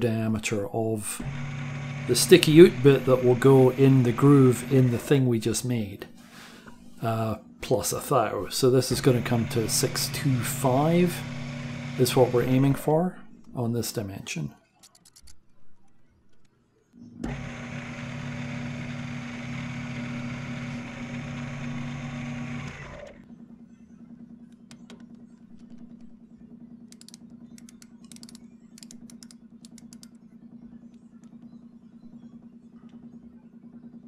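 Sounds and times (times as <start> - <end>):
metal lathe whining: 1.1 - 5.5, 8.6 - 12.9, 17.2 - 23.2.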